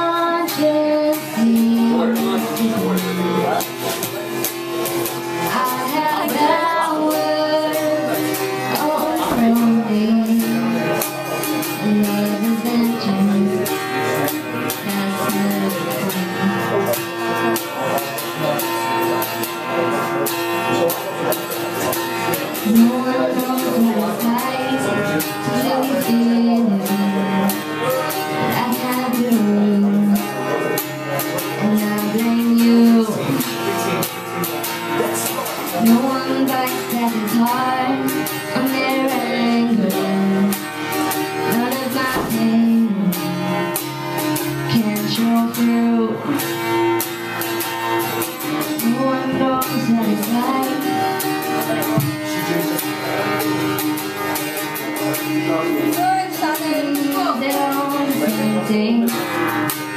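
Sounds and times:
woman singing: 0:00.0 - 0:03.2, 0:05.4 - 0:16.8, 0:22.6 - 0:30.5, 0:31.4 - 0:33.6, 0:35.7 - 0:43.6, 0:44.4 - 0:46.4, 0:48.6 - 0:52.3, 0:55.9 - 0:59.9
strummed acoustic guitar: 0:00.0 - 0:59.9.

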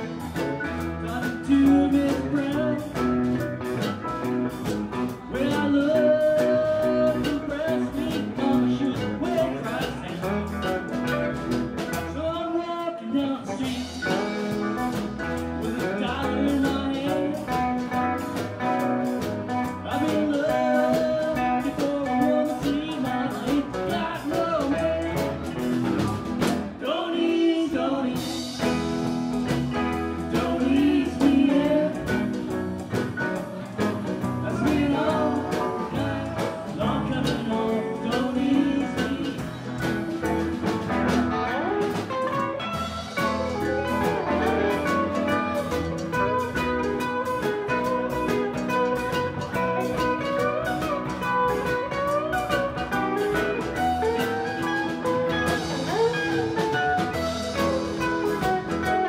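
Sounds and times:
person singing: 0:00.0 - 0:03.8, 0:04.9 - 0:10.9, 0:11.9 - 0:59.0
steady drum beat: 0:00.0 - 0:12.4, 0:13.4 - 0:26.9, 0:28.0 - 0:59.0
electric guitar: 0:00.0 - 0:59.0.

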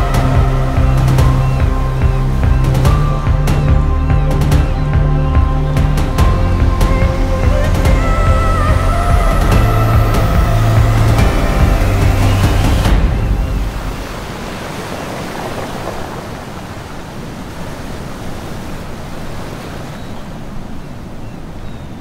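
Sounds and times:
music: 0:00.0 - 0:14.2
sea surf breaking: 0:00.0 - 0:21.3.

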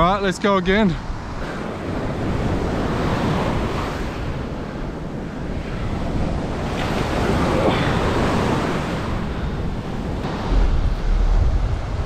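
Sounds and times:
wind buffeting microphone: 0:00.0 - 0:12.0
surf breaking on beach: 0:05.5 - 0:12.0.

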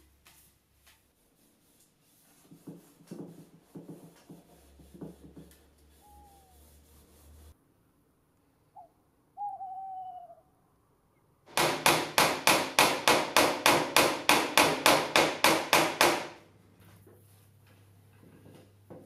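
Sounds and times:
owl hooting: 0:05.9 - 0:06.7, 0:08.7 - 0:10.6.

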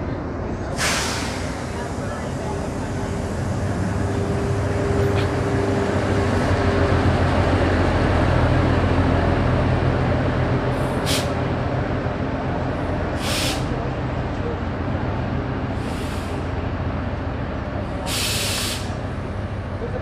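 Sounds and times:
diesel locomotive engine droning: 0:00.0 - 0:20.0
air hiss: 0:00.8 - 0:03.4, 0:13.2 - 0:13.7, 0:18.1 - 0:19.0.

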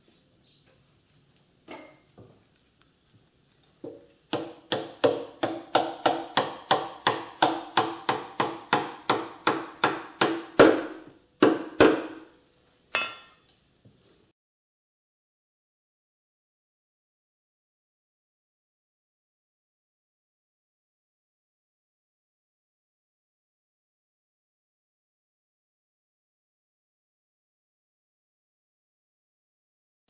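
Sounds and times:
metallic ring: 0:12.9 - 0:13.5.

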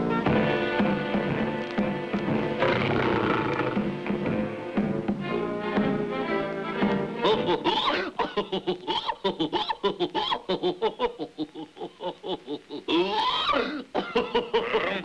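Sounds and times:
cartoon character laughing: 0:07.2 - 0:15.0.

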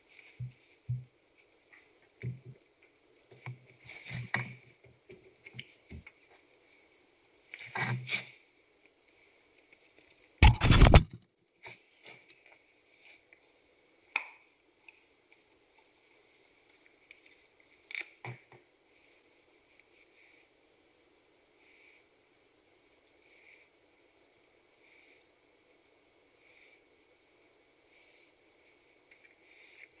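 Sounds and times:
tools clicking and knocking: 0:10.4 - 0:11.2.

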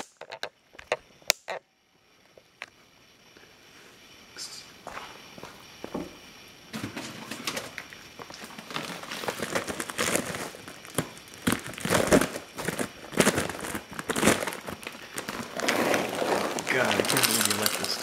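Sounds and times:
food bag crinkling: 0:07.3 - 0:18.0.

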